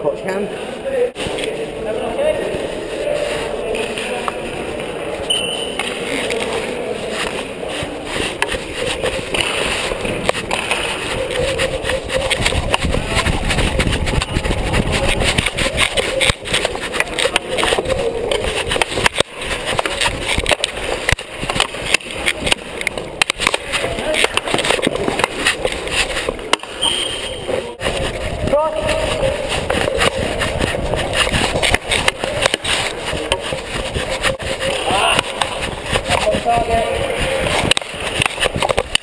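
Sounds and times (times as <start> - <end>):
hockey sticks clacking: 1.2 - 39.0
rubbing and knocking on camera: 7.2 - 26.8, 27.8 - 39.0
distant shouts echoing: 34.6 - 37.5.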